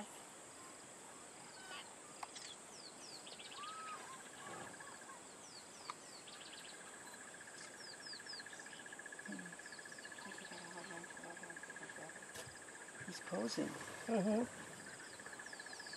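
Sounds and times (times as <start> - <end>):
steady high hiss: 0.0 - 15.9
bird chirps and trills: 1.4 - 15.9
fast-pulsing insect trill: 6.2 - 15.9.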